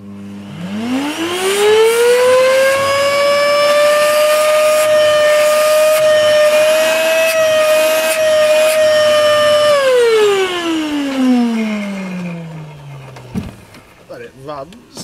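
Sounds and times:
vacuum cleaner motor whining: 0.0s - 14.0s.

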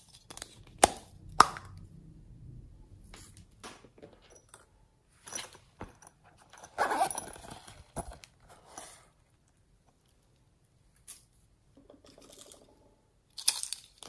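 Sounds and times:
zipper clicks and rustles: 5.3s - 9.1s.

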